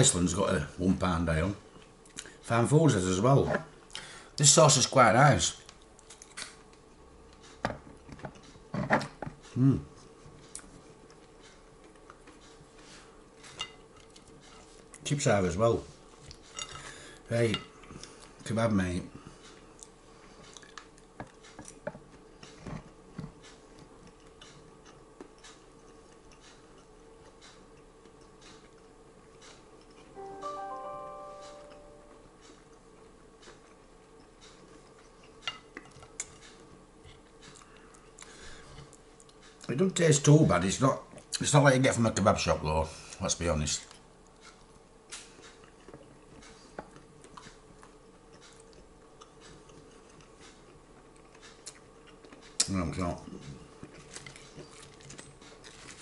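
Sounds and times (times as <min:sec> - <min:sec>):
faint steady hum: 0:00.0 - 0:56.0
man chewing with mouth clicks: 0:05.6 - 0:15.0, 0:19.4 - 0:30.2, 0:32.1 - 0:39.7, 0:43.8 - 0:56.0.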